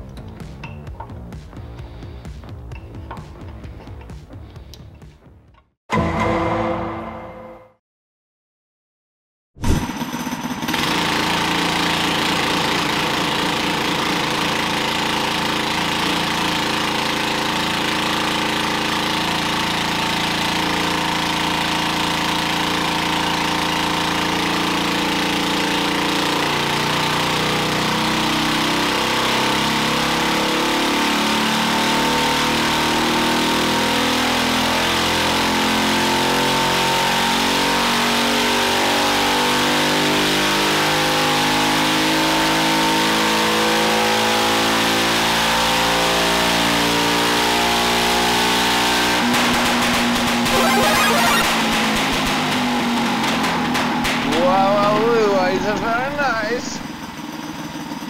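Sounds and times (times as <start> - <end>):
small engine running: 9.6 - 31.8.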